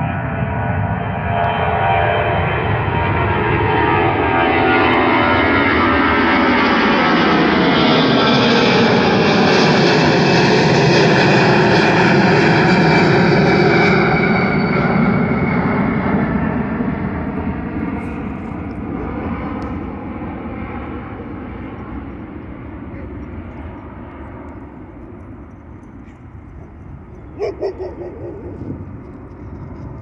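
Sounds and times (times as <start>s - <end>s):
jet engines at takeoff: 0.0s - 30.0s.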